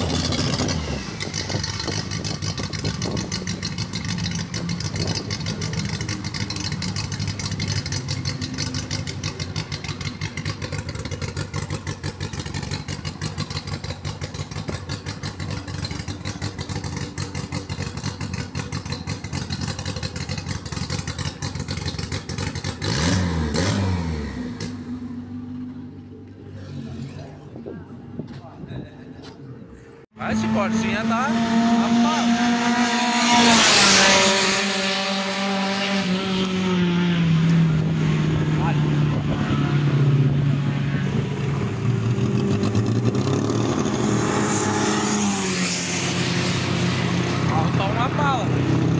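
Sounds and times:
race car engine idling and revving: 0:00.0 - 0:48.9.

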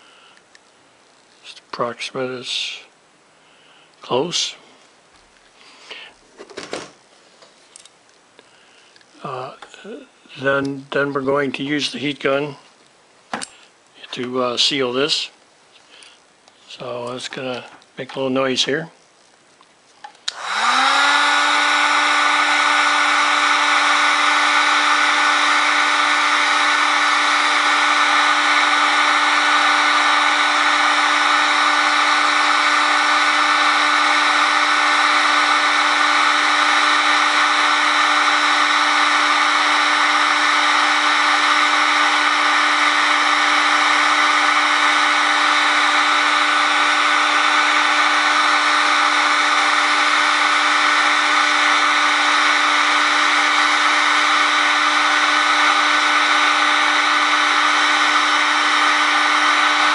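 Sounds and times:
heat gun blowing air: 0:20.2 - 0:59.9.

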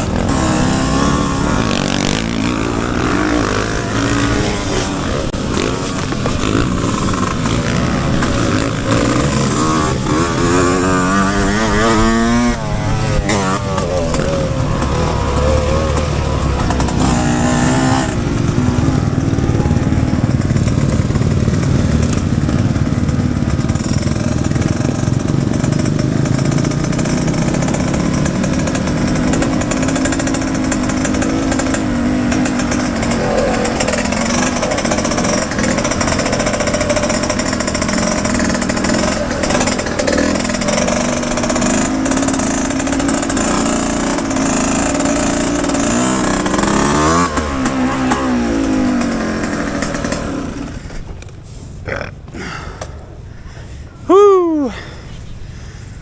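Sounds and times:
two-stroke motorcycle engine revving: 0:00.0 - 0:51.1.

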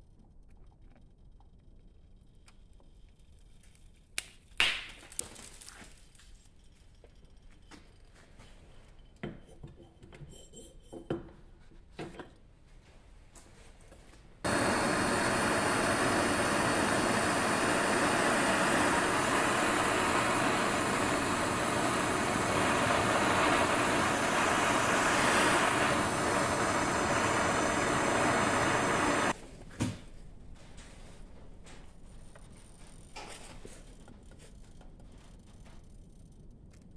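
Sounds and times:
propane torch flame hissing: 0:14.4 - 0:29.4.

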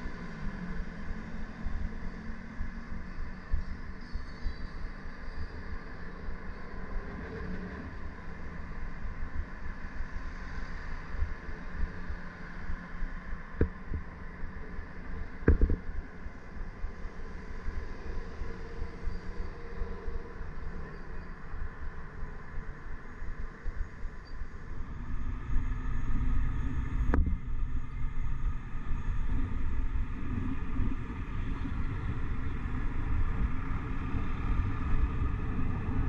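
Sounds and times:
city traffic hum: 0:00.0 - 0:36.0
sharp knocks: 0:15.4 - 0:15.8.

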